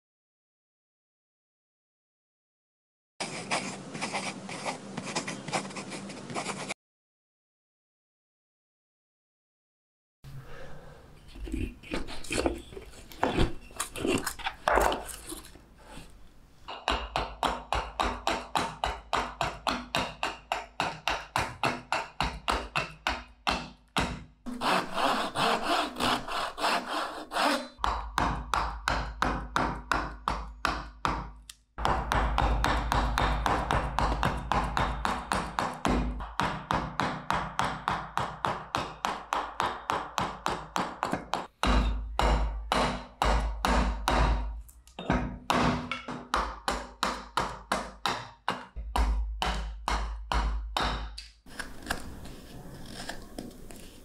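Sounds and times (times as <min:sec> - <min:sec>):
hand saw cutting wood: 0:24.5 - 0:27.8.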